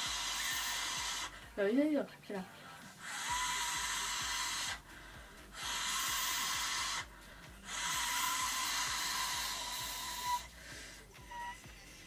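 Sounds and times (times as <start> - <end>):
loud hiss with faint whistle: 0.0 - 1.3, 11.2 - 12.0.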